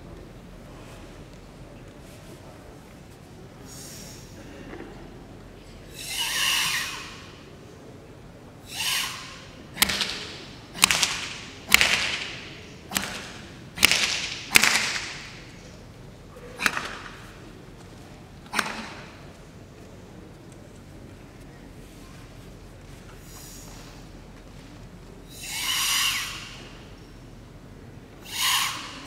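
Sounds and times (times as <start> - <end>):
forceful hissing breaths: 3.6 - 4.5, 5.8 - 7.5, 8.6 - 11.5, 23.1 - 24.1, 25.3 - 27.0, 28.2 - 29.0.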